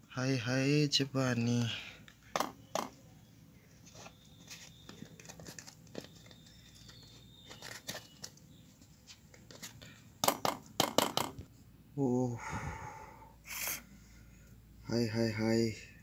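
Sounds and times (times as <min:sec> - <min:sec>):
packet crinkling and rustling: 0:03.9 - 0:09.9.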